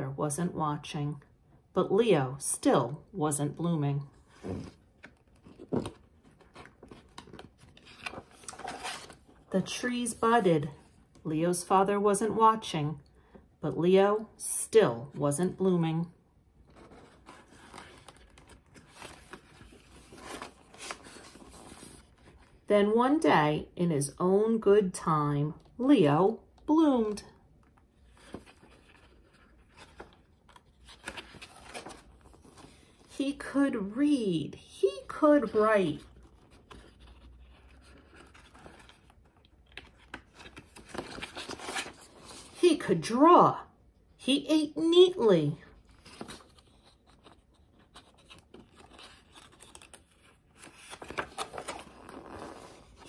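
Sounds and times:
paper page turning: 0:04.4 - 0:09.4, 0:16.7 - 0:22.5, 0:28.0 - 0:33.2, 0:35.4 - 0:42.6, 0:45.8 - 0:53.0.

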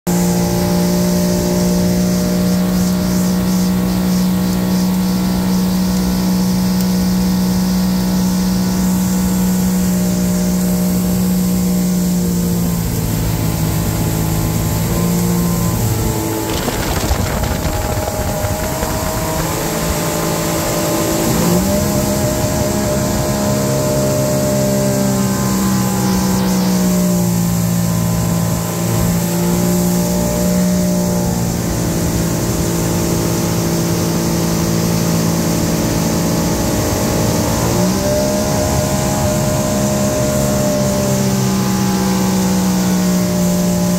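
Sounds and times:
wind: 0:00.0 - 0:43.9
motorboat engine droning: 0:00.1 - 0:43.9
wake water rushing: 0:00.1 - 0:43.9.

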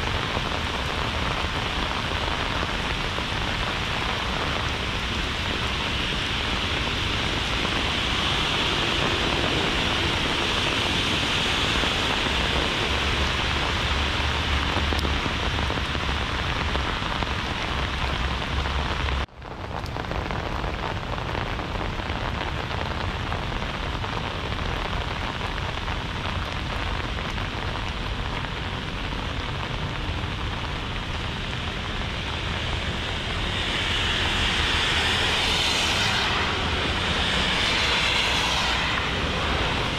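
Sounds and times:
heavy rain pattering: 0:00.0 - 0:39.9
low rumble: 0:27.6 - 0:39.9.

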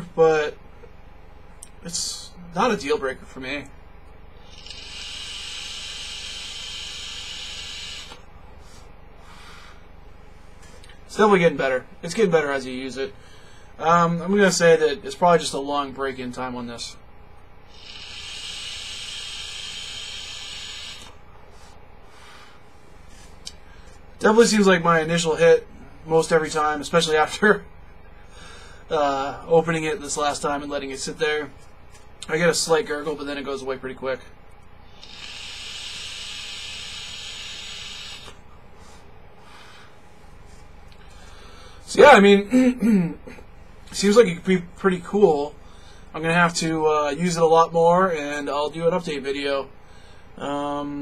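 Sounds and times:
vape hiss of air: 0:04.4 - 0:09.8, 0:17.7 - 0:24.0, 0:34.9 - 0:41.1
breathy exhale: 0:04.4 - 0:09.9, 0:13.2 - 0:13.8, 0:17.8 - 0:24.0, 0:28.2 - 0:28.9, 0:34.9 - 0:40.1, 0:41.0 - 0:41.9, 0:45.6 - 0:46.1, 0:49.8 - 0:50.4.

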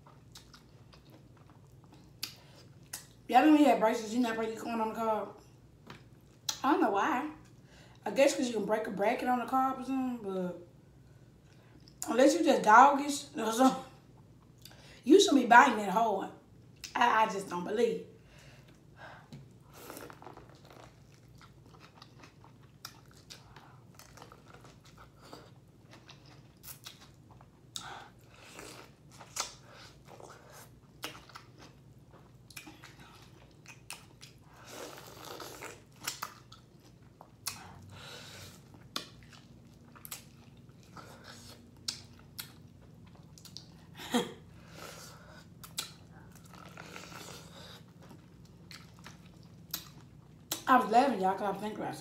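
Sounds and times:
corn cob crunching and chewing: 0:19.8 - 0:37.9.

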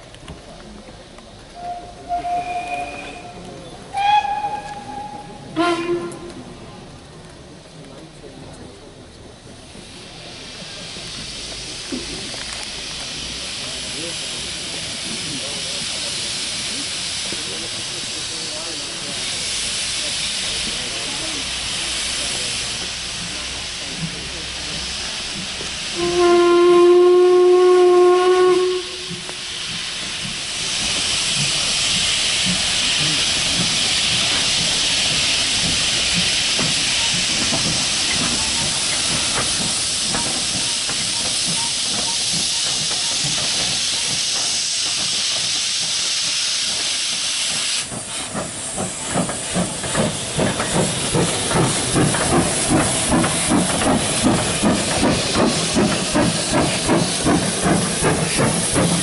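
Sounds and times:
steam locomotive whistle: 0:01.6 - 0:06.4, 0:25.9 - 0:29.4
steam hissing: 0:09.3 - 0:59.0
rhythmic locomotive exhaust beats: 0:09.5 - 0:59.0.

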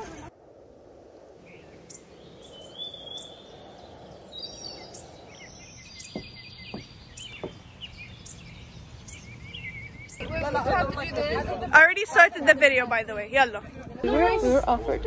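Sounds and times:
steady background hiss: 0:00.3 - 0:10.2
birds chirping and trilling: 0:01.4 - 0:10.5.

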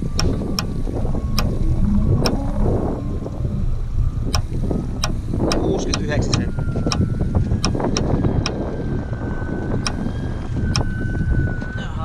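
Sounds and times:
sharp clicks: 0:00.0 - 0:01.6, 0:04.3 - 0:08.6, 0:10.7 - 0:10.9
wind buffeting microphone: 0:00.0 - 0:12.0.

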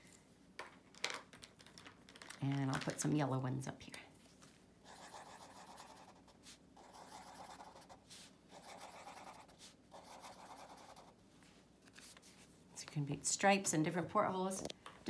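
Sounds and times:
marker scribbling on paper: 0:04.8 - 0:11.2.

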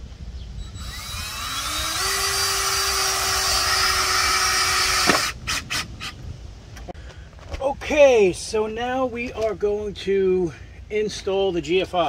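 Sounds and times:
cordless drill whining: 0:00.6 - 0:06.2.

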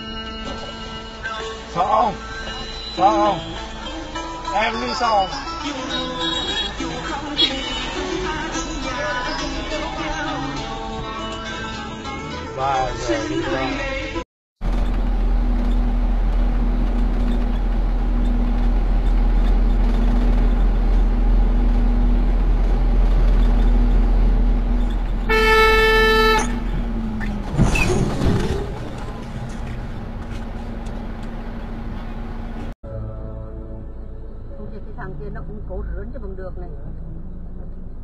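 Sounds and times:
truck engine and road rumble: 0:00.0 - 0:38.0
truck horn blast: 0:06.0 - 0:07.9, 0:25.2 - 0:27.0
low hum: 0:26.4 - 0:38.0.

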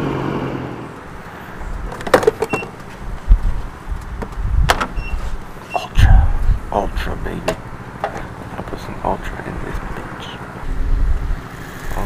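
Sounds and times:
short keypad beeps: 0:05.0 - 0:06.0
gas pump clicks and knocks: 0:07.4 - 0:08.3.

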